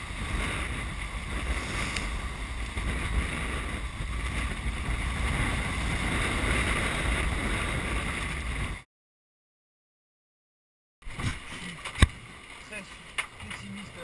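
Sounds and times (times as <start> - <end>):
water rushing along hull: 0.0 - 8.8, 11.0 - 14.0
wind buffeting microphone: 0.0 - 8.8.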